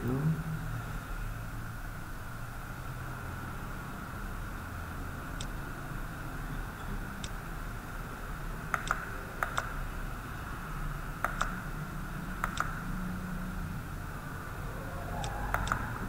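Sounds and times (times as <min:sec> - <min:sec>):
room and computer hum: 0:00.0 - 0:16.0
computer mouse clicks: 0:07.2 - 0:07.4, 0:08.7 - 0:09.8, 0:11.2 - 0:11.6, 0:12.4 - 0:12.9, 0:15.2 - 0:16.0.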